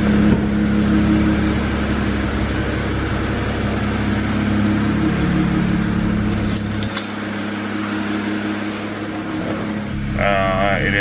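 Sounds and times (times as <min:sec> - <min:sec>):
car engine idling: 0:00.0 - 0:11.0
metallic jingle and clicks: 0:06.3 - 0:07.2.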